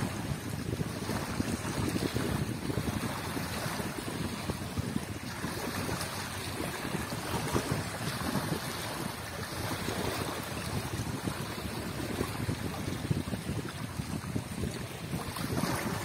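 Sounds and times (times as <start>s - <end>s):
waves lapping onto bank: 0.0s - 16.0s
wind buffeting microphone: 0.0s - 16.0s.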